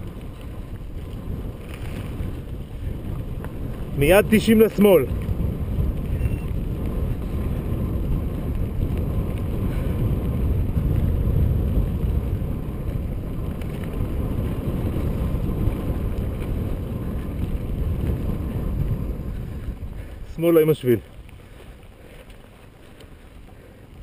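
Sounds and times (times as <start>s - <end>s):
bike tyres rolling on dirt: 0.0s - 24.0s
wind rushing on microphone: 0.0s - 24.0s.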